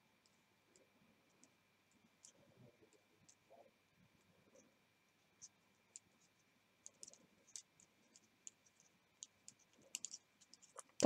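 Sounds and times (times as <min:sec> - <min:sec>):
knitting needles clicking: 0:06.8 - 0:11.0.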